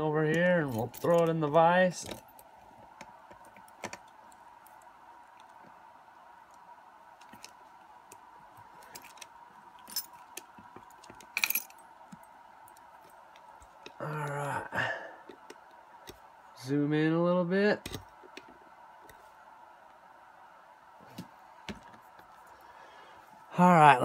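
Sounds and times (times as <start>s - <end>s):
faint steady hum: 0.0s - 24.0s
keys jingling: 8.8s - 12.3s.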